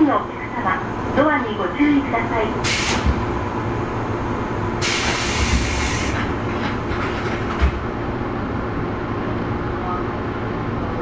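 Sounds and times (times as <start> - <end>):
train equipment hum: 0.0 - 11.0
compressed air hiss: 2.6 - 3.1, 4.8 - 6.2.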